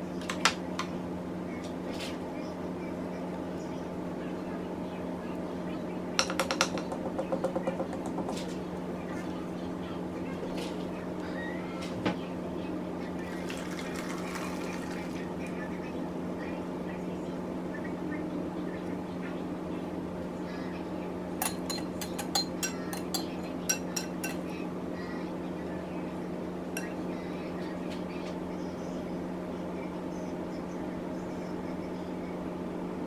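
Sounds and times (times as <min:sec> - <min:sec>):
steady low hum: 0:00.0 - 0:33.0
utensil clinking against glass bowl: 0:21.4 - 0:24.4.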